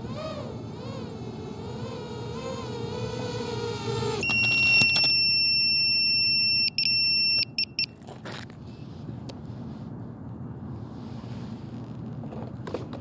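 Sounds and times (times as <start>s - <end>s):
drone propellers whining: 0.0s - 4.8s
high electronic beep: 4.2s - 7.9s.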